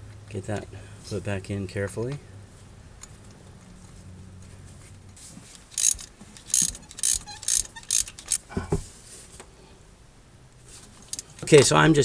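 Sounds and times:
ratchet wrench clicking: 5.7s - 8.4s.

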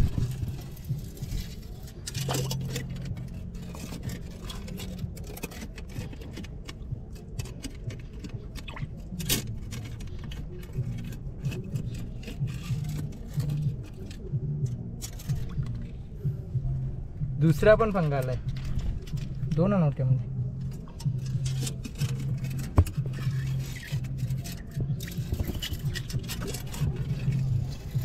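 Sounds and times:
metal hook scraping stones: 0.1s - 14.3s, 20.6s - 28.0s.

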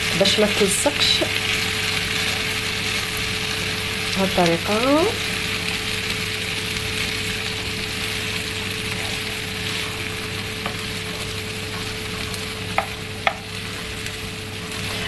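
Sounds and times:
potatoes sizzling in oil: 0.0s - 15.0s
spatula stirring in pan: 5.2s - 15.0s.

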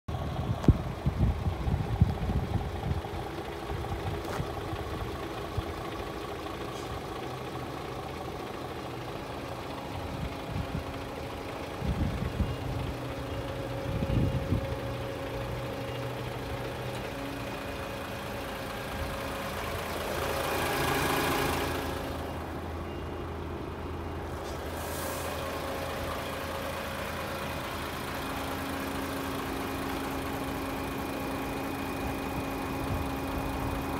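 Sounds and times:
diesel engine idling: 0.1s - 33.9s
short rush of noise: 24.3s - 25.4s.

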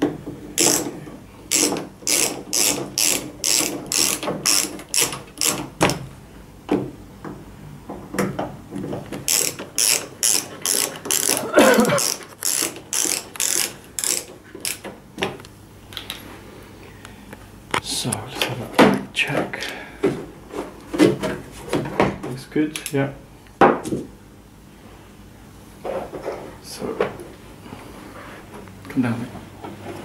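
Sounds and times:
screwdriver clicking: 0.6s - 0.8s, 1.5s - 5.6s, 9.3s - 11.4s, 12.0s - 14.9s.

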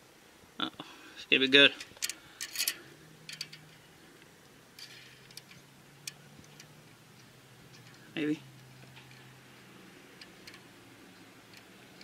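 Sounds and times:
metal fitting clicking and tapping: 11.5s - 12.0s.

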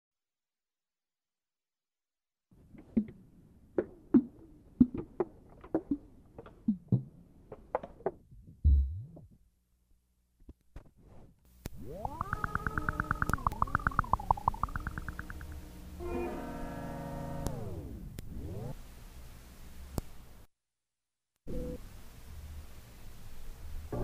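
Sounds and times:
sparse clicks: 11.7s - 15.6s
pulsing synth chord: 11.8s - 18.0s.

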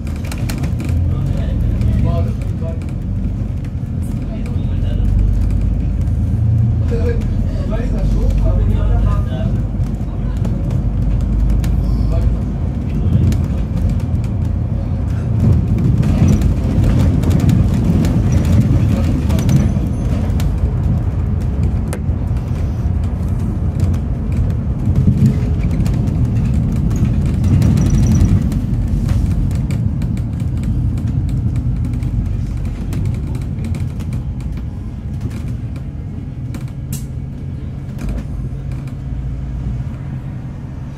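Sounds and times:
bus engine and road rumble: 0.0s - 40.9s.

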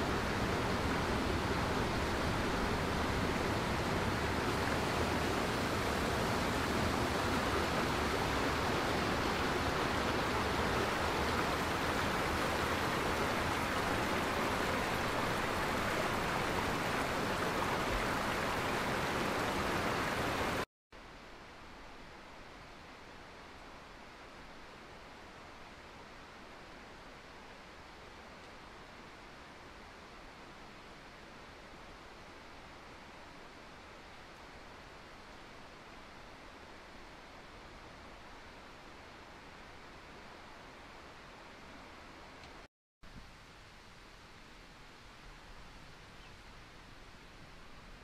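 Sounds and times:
stream rushing over boulders: 0.0s - 20.7s
quiet outdoor background: 0.0s - 48.0s.

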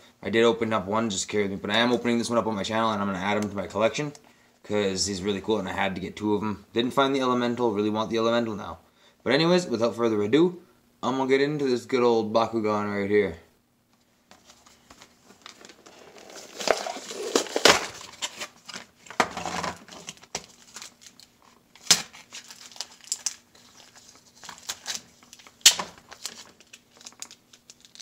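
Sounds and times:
plastic packaging crinkling: 14.4s - 28.0s
packaging sharp snaps: 20.1s - 28.0s.

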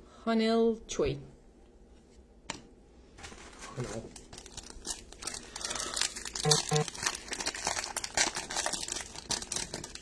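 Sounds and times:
foil wrapper crinkling: 3.2s - 10.0s.

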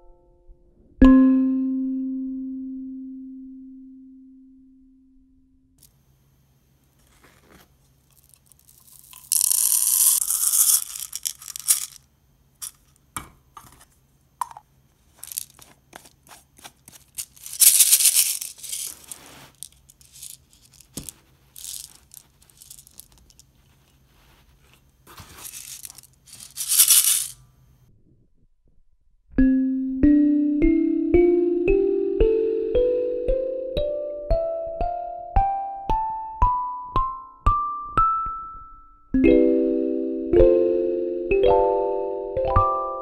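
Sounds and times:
plastic shaker rattling: 8.1s - 12.0s, 12.6s - 12.9s, 15.1s - 23.7s, 25.2s - 27.4s.

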